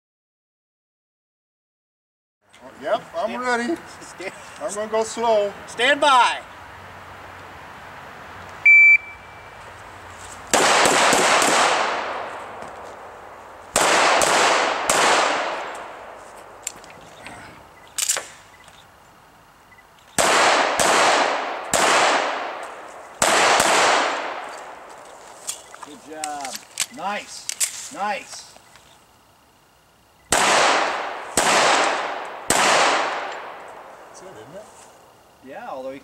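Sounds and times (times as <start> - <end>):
shot timer beep: 8.6 - 9.5
handgun shots echoing: 10.6 - 12.3, 13.8 - 15.8, 20.2 - 24.4, 30.3 - 33.6.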